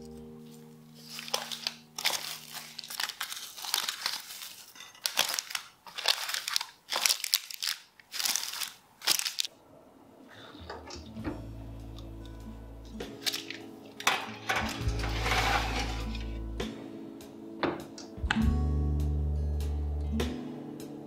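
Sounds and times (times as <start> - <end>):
cling film crinkling: 0.4 - 9.5, 13.1 - 16.4.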